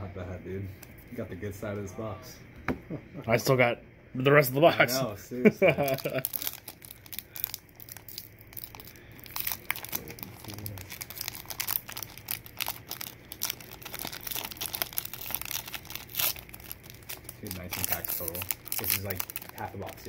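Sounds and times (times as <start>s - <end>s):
foil wrapper crinkling and tearing: 5.8s - 20.0s.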